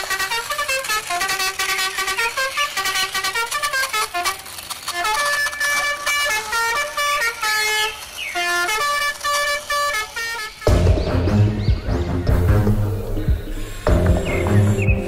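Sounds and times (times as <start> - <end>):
quick bright melody: 10.7 - 15.0.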